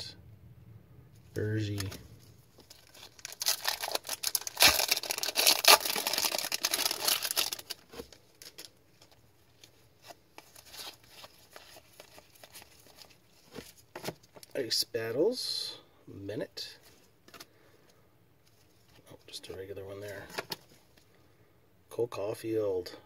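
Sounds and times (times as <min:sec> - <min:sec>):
foil wrapper tearing and crinkling: 0:02.7 - 0:08.7.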